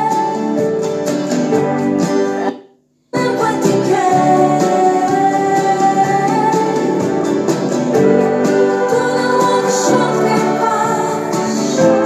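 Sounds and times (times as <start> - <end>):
pop song on radio: 0.0 - 2.5, 3.2 - 12.0.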